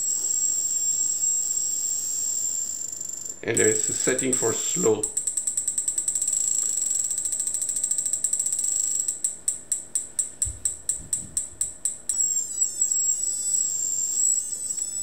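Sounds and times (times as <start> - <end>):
high-pitched whine: 0.0 - 7.5, 10.5 - 15.0
stroboscope ticking: 3.6 - 15.0.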